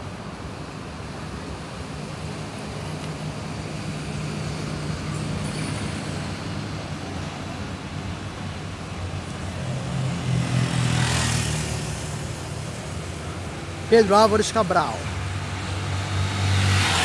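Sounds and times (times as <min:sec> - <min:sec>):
tyre and road noise: 0:00.0 - 0:17.0
vehicle passing: 0:08.2 - 0:17.0.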